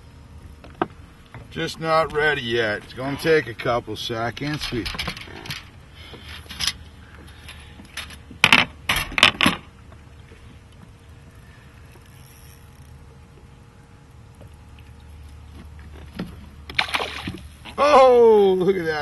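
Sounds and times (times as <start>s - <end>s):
steady low hum: 0.0s - 19.0s
fishing reel clicking: 11.8s - 13.0s.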